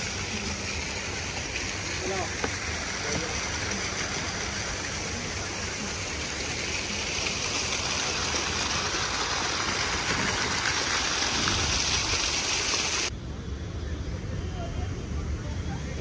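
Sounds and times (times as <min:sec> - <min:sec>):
fountain water splashing: 0:00.0 - 0:13.1.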